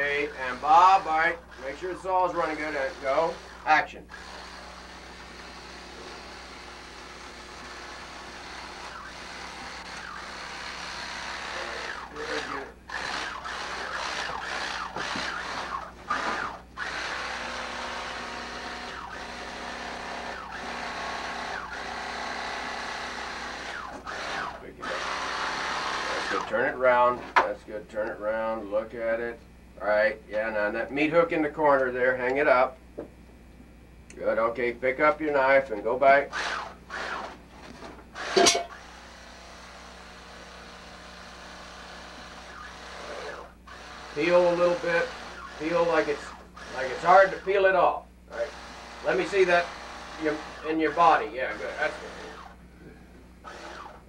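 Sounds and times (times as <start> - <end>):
chainsaw engine revving: 42.2 - 47.5, 48.3 - 52.6, 53.4 - 54.0.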